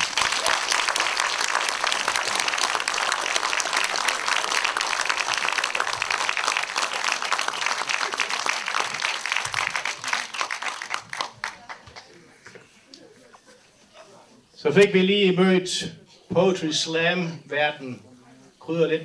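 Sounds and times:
audience applauding: 0.0s - 12.6s.

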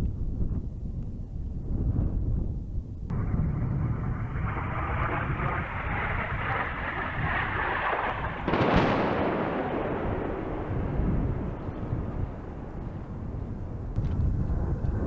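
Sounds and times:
steady low noise: 3.0s - 15.0s
distant explosion boom: 3.1s - 14.2s.

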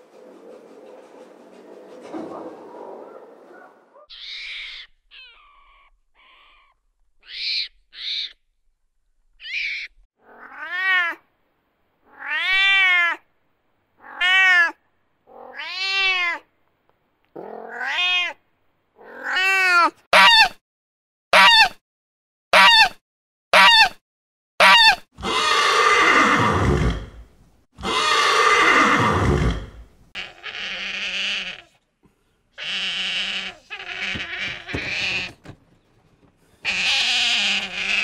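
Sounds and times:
cat meowing: 12.1s - 13.2s, 14.0s - 16.4s, 17.4s - 18.4s, 32.6s - 35.4s, 36.6s - 38.0s.

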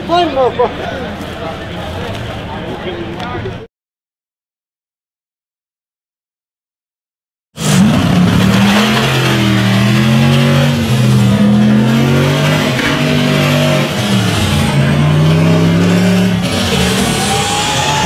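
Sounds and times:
buggy engine revving: 7.6s - 18.0s.

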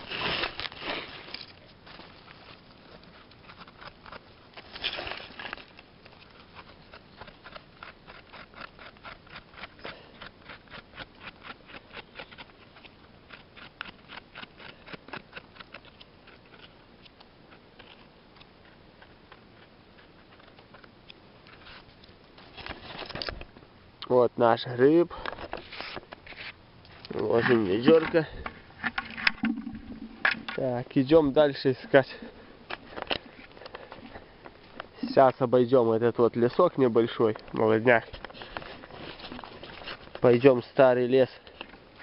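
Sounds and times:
rustling in dry leaf litter: 0.0s - 3.2s, 4.5s - 6.9s
knife scraping mushroom stem: 2.9s - 20.8s, 38.1s - 40.3s.

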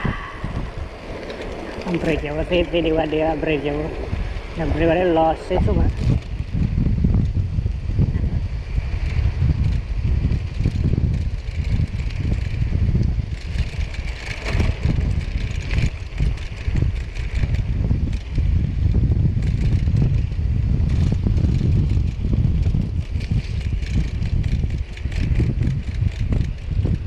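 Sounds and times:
low rumble: 0.0s - 27.0s
wind buffeting microphone: 0.0s - 27.0s.

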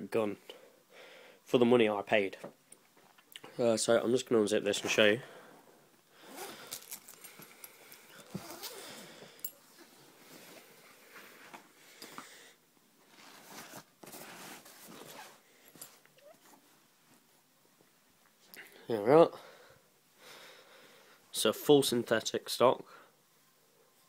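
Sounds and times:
zip pulled open: 6.2s - 7.4s, 8.2s - 9.0s, 13.2s - 15.4s
fabric rustling: 13.0s - 17.3s.

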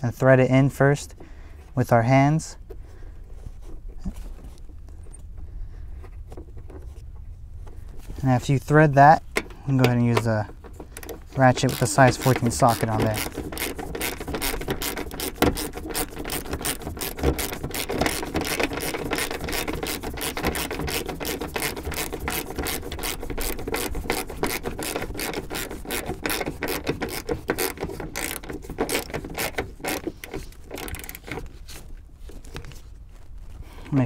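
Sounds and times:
ratchet wrench clicking: 10.9s - 31.4s.

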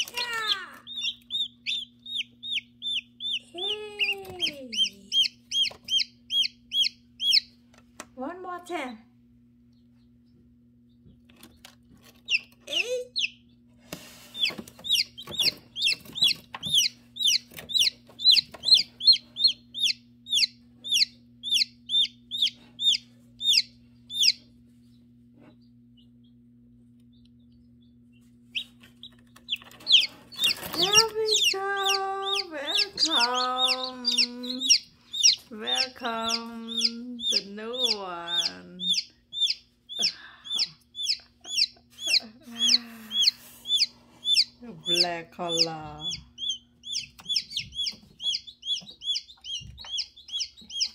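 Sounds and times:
chicks peeping: 0.0s - 8.0s, 9.7s - 50.9s
steady low hum: 0.0s - 50.9s.

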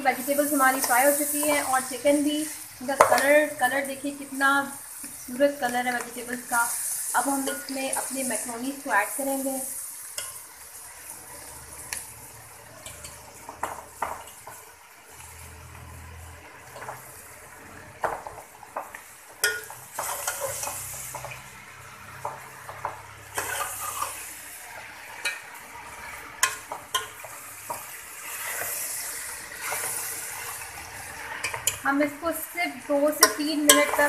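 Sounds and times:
vegetables sizzling in a pot: 0.0s - 34.0s
steel spoon scraping a pot: 19.4s - 21.3s, 23.3s - 24.3s, 28.2s - 31.8s, 33.2s - 34.0s.

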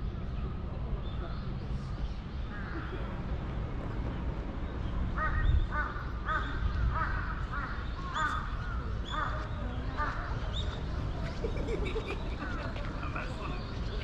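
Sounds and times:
crow cawing: 5.2s - 8.4s.

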